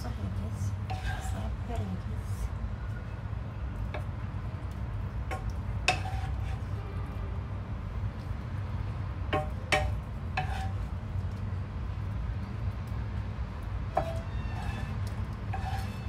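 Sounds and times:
spatula clinking on pan and plate: 0:05.3 - 0:06.6, 0:14.0 - 0:16.0.

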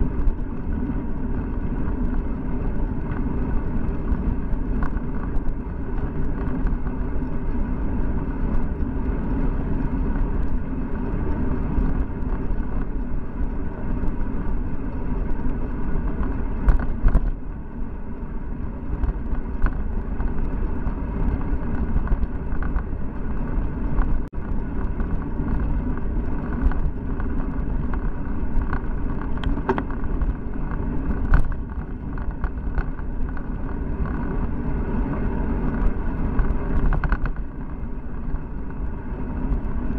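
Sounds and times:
road rumble: 0:00.0 - 0:39.9
wind rush: 0:00.0 - 0:39.9
clicks and knocks from bumps: 0:19.0 - 0:22.9, 0:24.8 - 0:34.4, 0:35.7 - 0:37.5.

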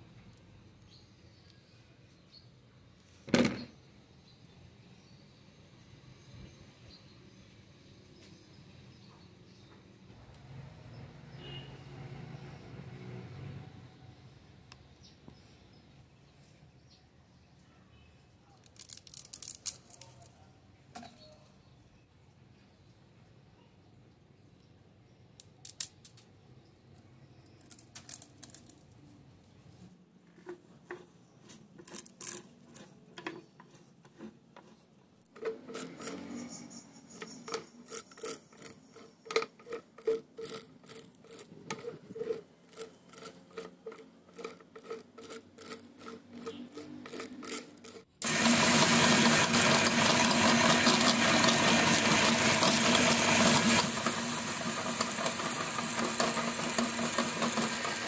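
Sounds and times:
meat grinder motor grinding: 0:35.4 - 0:58.0.

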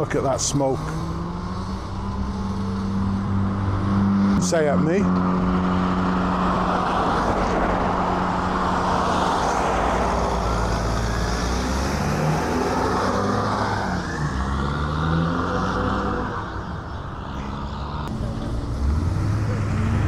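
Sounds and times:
car engine accelerating past: 0:00.7 - 0:20.0
cars idling: 0:16.1 - 0:20.0.

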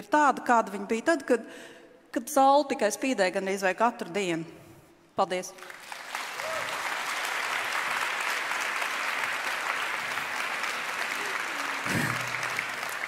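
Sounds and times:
large audience applauding: 0:05.6 - 0:13.0.

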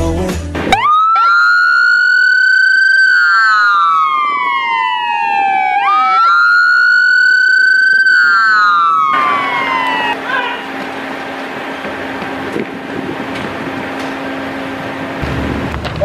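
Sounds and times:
sirens wailing: 0:00.7 - 0:12.3.

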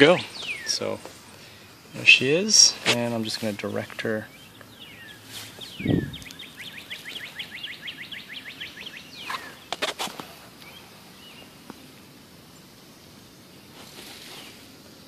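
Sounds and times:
bird trilling: 0:04.3 - 0:09.7.

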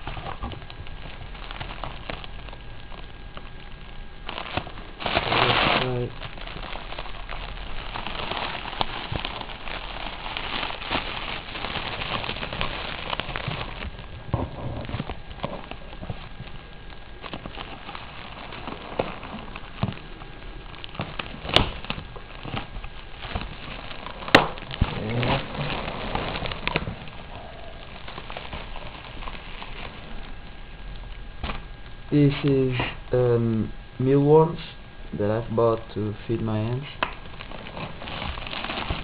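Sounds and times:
bubble wrap snaps: 0:00.0 - 0:32.6, 0:37.0 - 0:39.0
bubble wrap crinkling: 0:00.0 - 0:33.7, 0:35.4 - 0:39.0.

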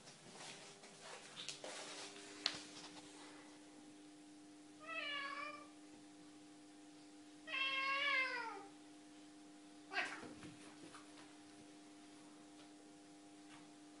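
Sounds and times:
steady low hum: 0:00.0 - 0:14.0
cat meowing: 0:04.8 - 0:05.7, 0:07.5 - 0:08.7, 0:09.9 - 0:10.3.

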